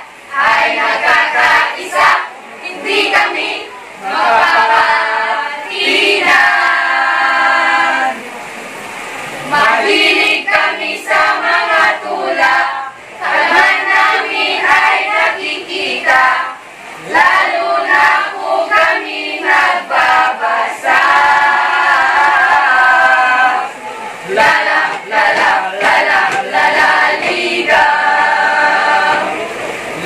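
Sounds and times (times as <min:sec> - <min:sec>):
group singing in chorus: 0:00.0 - 0:08.3, 0:09.4 - 0:30.0.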